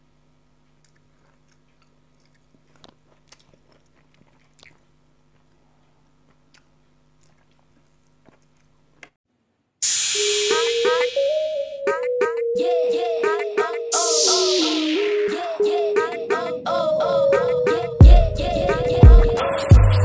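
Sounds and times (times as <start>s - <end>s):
music with sung melody: 10.2s - 20.0s
low hum: 13.9s - 20.0s.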